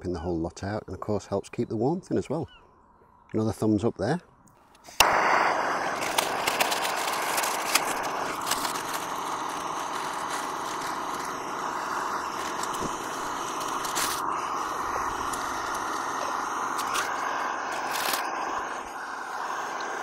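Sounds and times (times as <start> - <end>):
gas stove burner hissing: 4.9 - 20.0.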